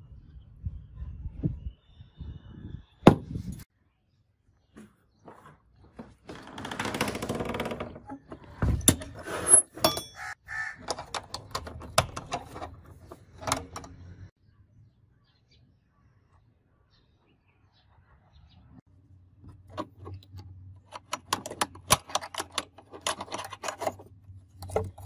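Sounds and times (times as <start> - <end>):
barrel bolt sliding: 10.8 - 14.3.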